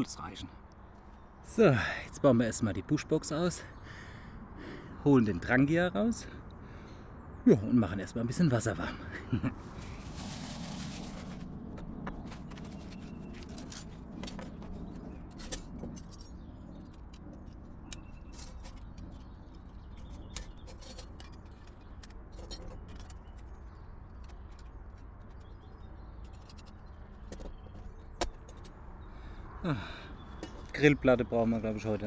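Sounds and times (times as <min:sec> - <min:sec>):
fabric rustling: 0:09.6 - 0:11.5.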